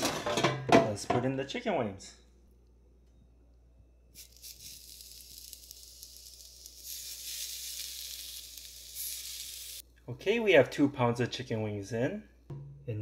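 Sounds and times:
chicken wings sizzling: 4.2s - 9.8s.

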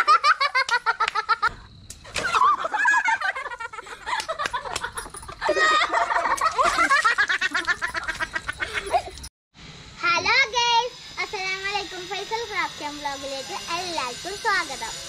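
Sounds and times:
children laughing and squealing: 0.0s - 9.3s.

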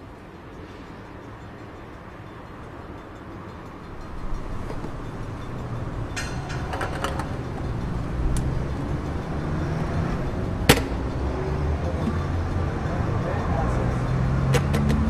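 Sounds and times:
low vehicle rumble: 3.8s - 15.0s.

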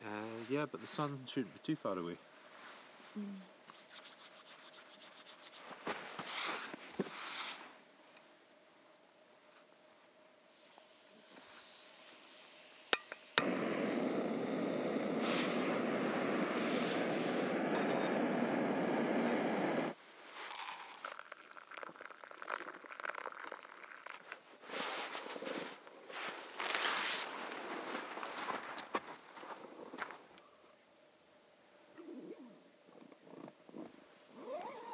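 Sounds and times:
gas hissing from valve: 10.5s - 20.0s
gas burner roaring: 10.6s - 20.0s
water pouring into a cup: 20.4s - 24.3s.

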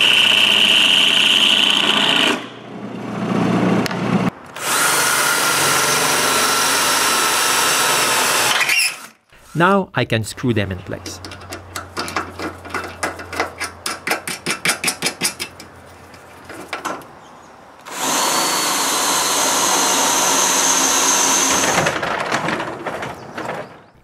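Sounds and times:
cordless drill whining: 4.5s - 9.6s, 17.8s - 22.0s.

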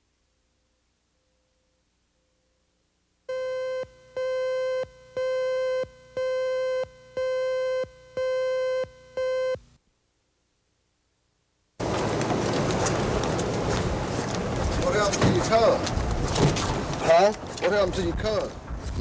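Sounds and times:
electronic beeps: 3.3s - 9.6s.

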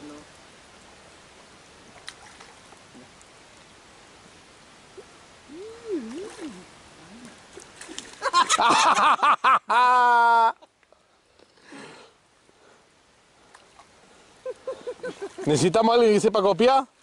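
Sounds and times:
steady rain: 0.0s - 17.0s
person humming faintly: 5.4s - 7.6s.

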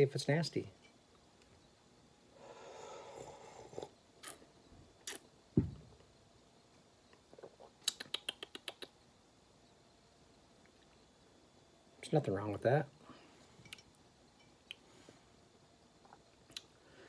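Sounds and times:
man slurping coffee: 3.0s - 4.4s
mouth clicks: 5.0s - 5.3s, 7.4s - 9.0s, 16.1s - 16.7s
sharp lip smacks: 5.0s - 5.3s, 7.4s - 9.0s, 16.5s - 16.7s
low thump: 5.6s - 6.0s.

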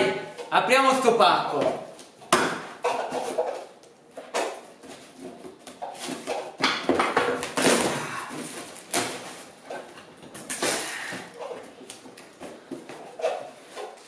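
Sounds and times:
packing tape ripping off cardboard: 5.7s - 12.7s.

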